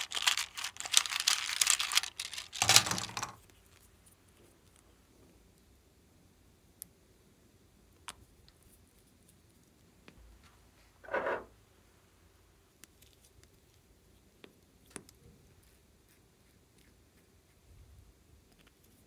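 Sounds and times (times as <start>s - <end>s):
plastic containers clicking: 2.5s - 3.4s.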